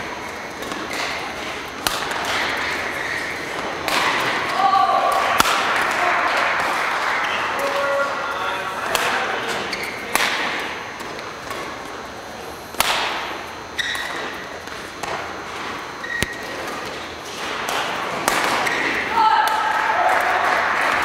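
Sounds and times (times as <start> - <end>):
court shoes squeaking: 0.0 - 4.5, 8.9 - 19.1
rackets hitting shuttlecock: 0.5 - 6.0, 8.8 - 12.0, 12.7 - 20.4.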